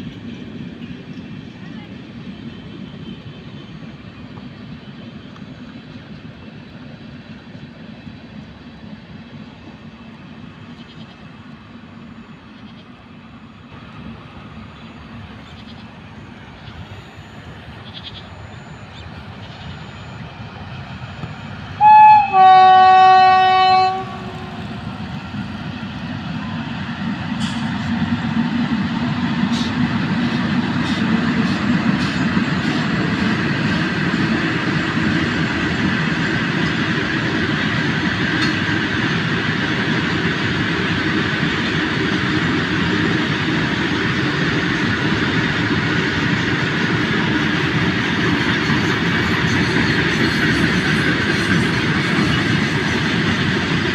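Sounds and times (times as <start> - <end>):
goods train rumbling past: 0.0 - 53.9
electric locomotive horn: 21.8 - 24.8
train wheels clicking over rail joints: 26.9 - 53.9.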